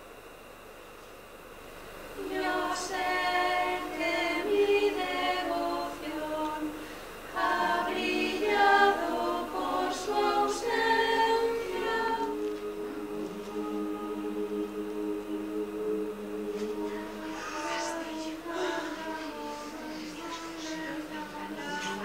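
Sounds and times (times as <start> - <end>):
group singing a cappella: 2.2 - 22.0.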